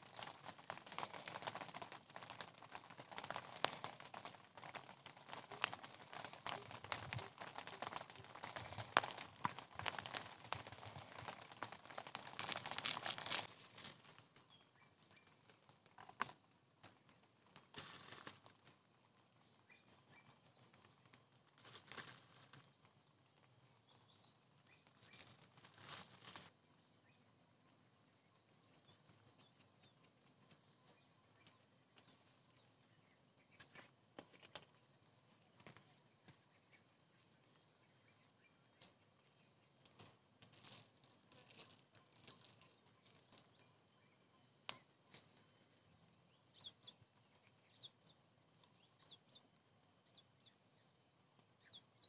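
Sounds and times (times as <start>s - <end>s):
rustling and crackling: 0.0s - 23.7s, 24.4s - 26.5s, 38.8s - 43.8s
faint chirps: 0.0s - 52.0s.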